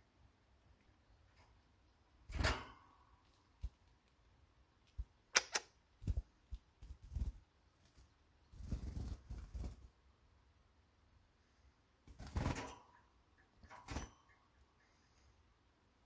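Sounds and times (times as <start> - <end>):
sharp clicks: 4.9 - 5.8
bird wings flapping: 6.8 - 9.9, 12.1 - 12.8.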